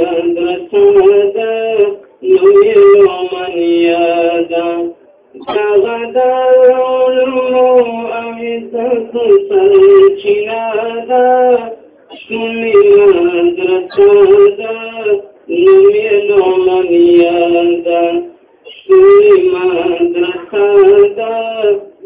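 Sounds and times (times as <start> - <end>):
person singing devotional song: 0.0 - 22.0.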